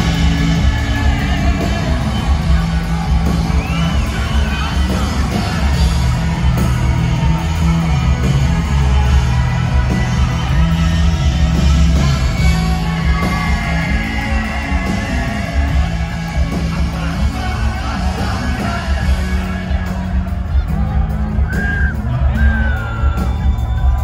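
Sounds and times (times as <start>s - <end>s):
drums: 0.0s - 24.0s
electric guitars: 0.0s - 24.0s
heavy bass line: 0.0s - 24.0s
man singing into a microphone: 12.4s - 20.6s.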